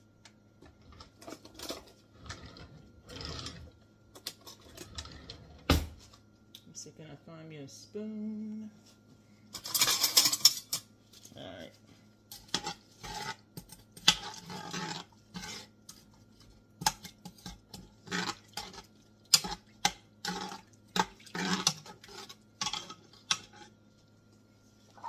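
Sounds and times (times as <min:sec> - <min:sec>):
spoon stirring broth: 0:12.3 - 0:24.3.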